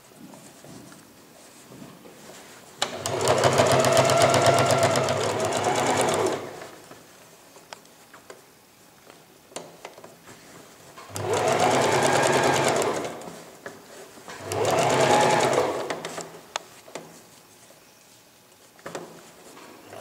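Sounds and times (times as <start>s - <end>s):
sewing machine stitching: 2.8s - 6.8s, 11.1s - 13.3s, 14.3s - 16.1s.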